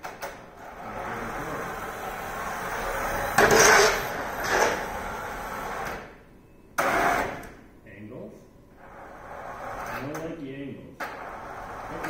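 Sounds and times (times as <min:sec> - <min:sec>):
robot drive motors and wheels: 0:00.6 - 0:06.1
loud noisy burst: 0:06.8 - 0:07.5.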